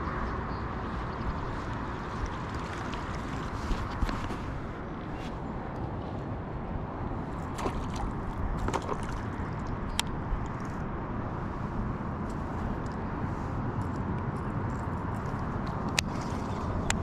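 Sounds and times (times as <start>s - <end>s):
wind rumbling on microphone: 0.0s - 17.0s
water lapping: 7.4s - 9.4s.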